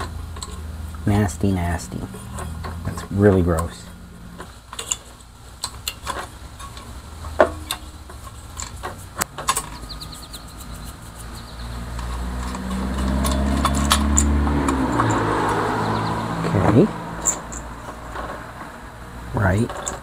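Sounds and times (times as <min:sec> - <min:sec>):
small metal parts clicking: 0:00.0 - 0:01.0, 0:04.4 - 0:15.7, 0:17.2 - 0:18.4, 0:19.6 - 0:20.0
vehicle engine hum: 0:00.0 - 0:20.0.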